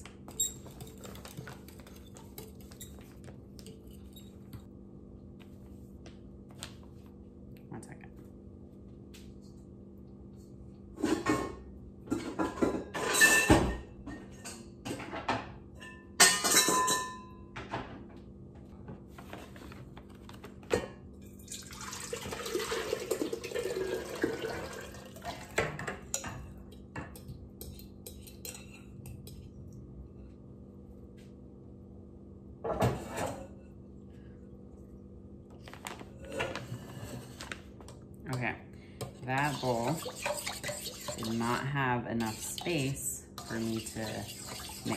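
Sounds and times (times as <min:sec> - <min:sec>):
utensil scraping steel bowl: 0:39.0 - 0:44.9
utensil clinking in glass bowl: 0:39.4 - 0:44.9.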